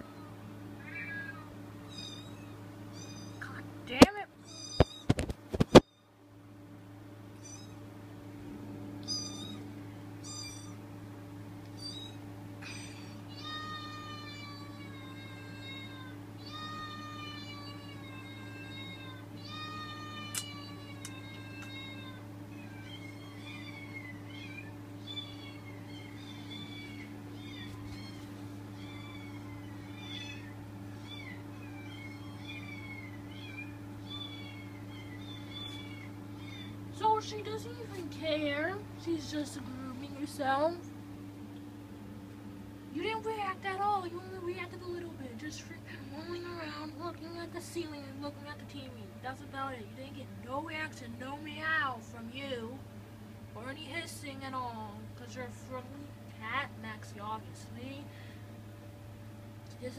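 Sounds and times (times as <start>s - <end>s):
steady low hum: 0.0s - 59.9s
cat meows over speaker: 0.8s - 2.4s.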